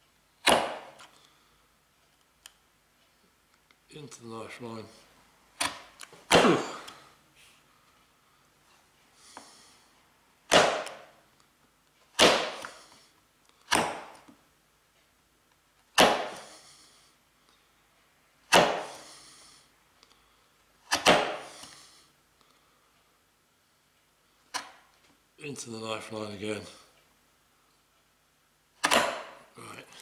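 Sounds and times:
chisel slicing through wood: 0.4 - 1.0, 10.5 - 11.0, 12.2 - 12.8, 16.0 - 16.5, 18.5 - 19.0, 20.9 - 21.6, 28.8 - 29.4.

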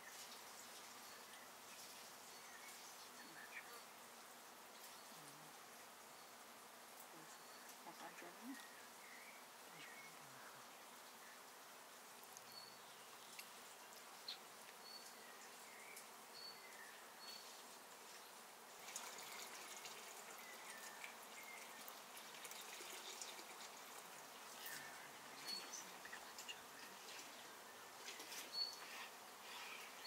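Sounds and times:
soft hiss: 0.0 - 30.0
bird chirps: 28.1 - 30.0.

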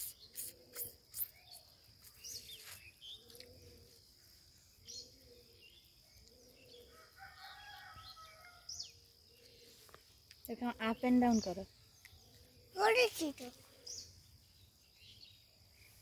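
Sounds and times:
high insect drone: 0.0 - 5.4
birds chirping: 0.0 - 16.0.

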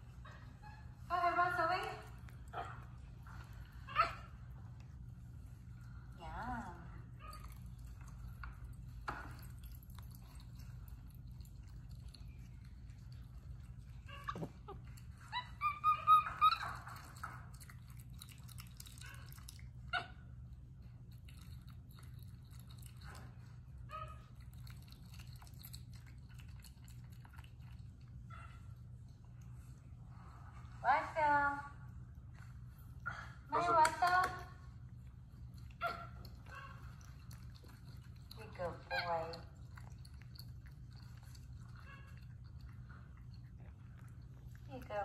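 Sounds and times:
faint low hum: 0.0 - 45.0
monkey chirping squeaks: 15.4 - 16.8.

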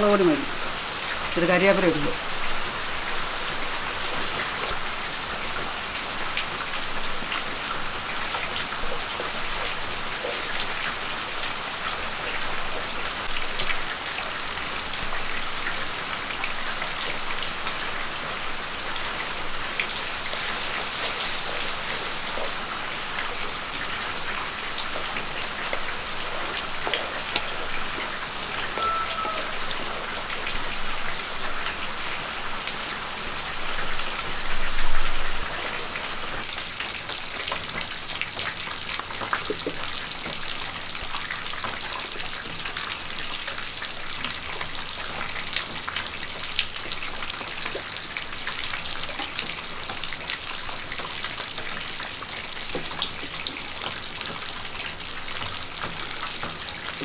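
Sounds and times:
food sizzling in hot oil: 19.3 - 23.4
loud hiss: 20.0 - 22.7.

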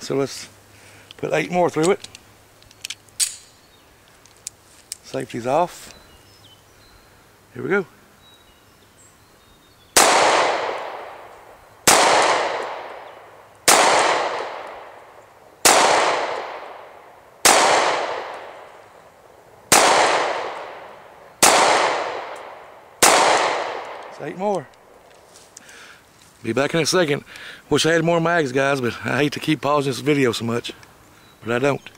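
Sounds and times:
pistol shots with echo: 10.0 - 15.0, 15.6 - 18.7, 19.7 - 24.1.

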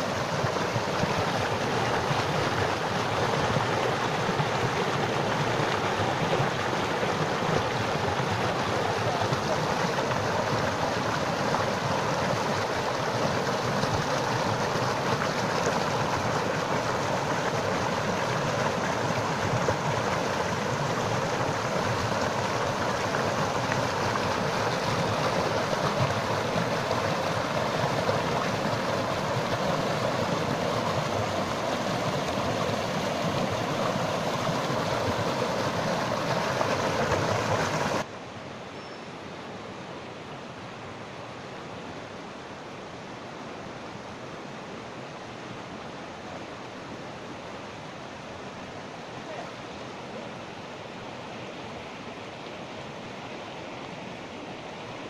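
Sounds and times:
whitewater rushing over rocks: 0.0 - 38.1.

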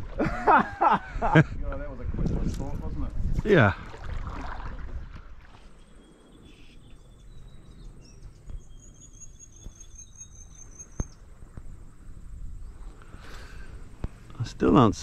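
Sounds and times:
low steady hiss: 10.0 - 15.0.

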